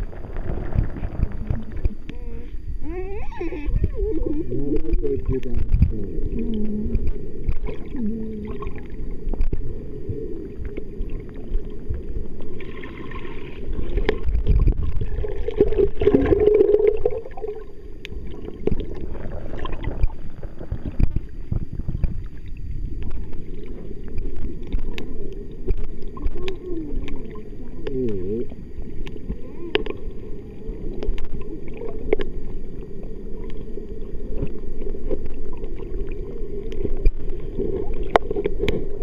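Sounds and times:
muffled underwater water rumble: 0:00.0 - 0:39.0
water gurgling: 0:00.0 - 0:39.0
underwater knocks: 0:19.6 - 0:22.3.

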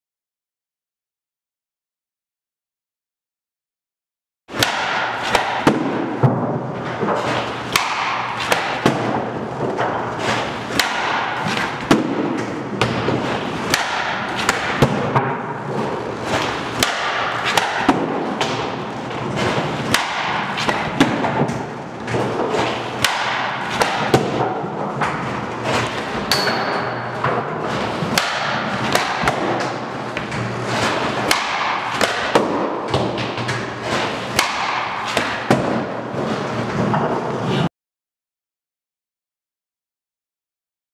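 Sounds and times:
pucks hitting target: 0:04.5 - 0:37.4
hockey stick striking pucks: 0:04.5 - 0:37.7.

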